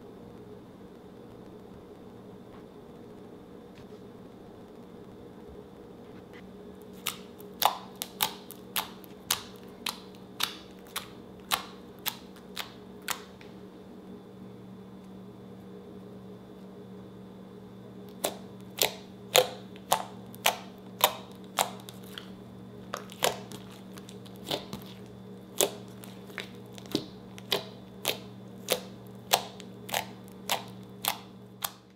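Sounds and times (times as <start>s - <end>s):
steady low hum: 0.0s - 31.9s
wet clicking pops of slime: 7.0s - 13.3s.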